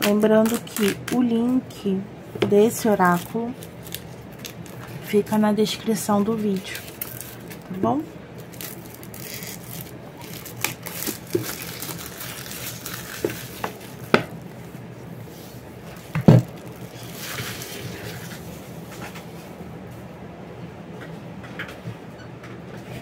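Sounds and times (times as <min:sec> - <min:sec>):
plastic wrap crinkling: 0:02.9 - 0:05.2, 0:06.2 - 0:07.7, 0:08.4 - 0:14.8, 0:15.8 - 0:18.5.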